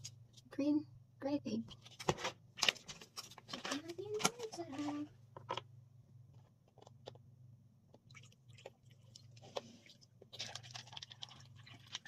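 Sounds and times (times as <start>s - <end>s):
drink pouring into cup: 8.1s - 12.0s
ice cracking and popping: 10.2s - 12.0s.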